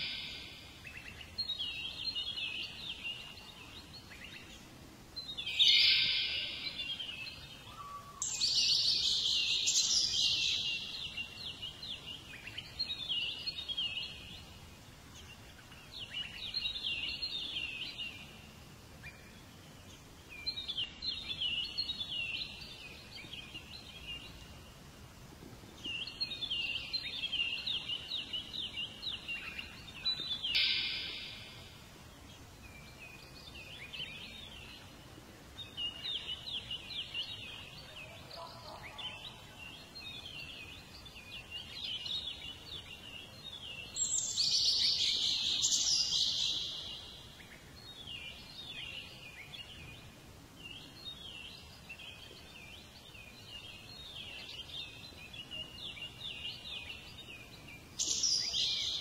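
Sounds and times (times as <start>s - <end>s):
faint steady hiss: 0.0s - 59.0s
songbird chirping: 0.0s - 59.0s.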